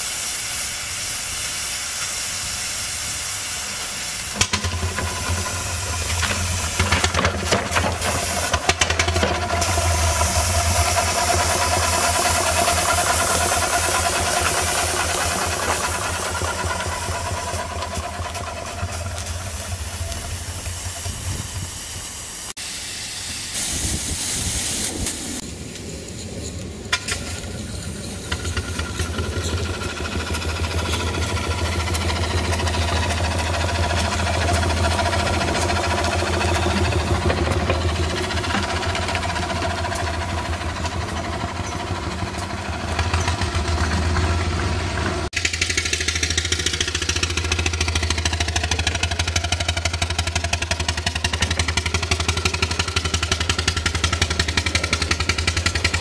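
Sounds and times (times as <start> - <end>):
steam hissing: 0.0 - 56.0.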